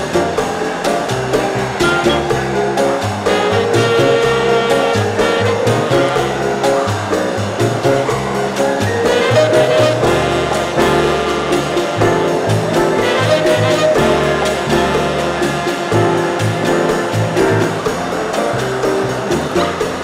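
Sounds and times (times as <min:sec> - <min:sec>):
upbeat music with bass beat: 0:00.0 - 0:20.0.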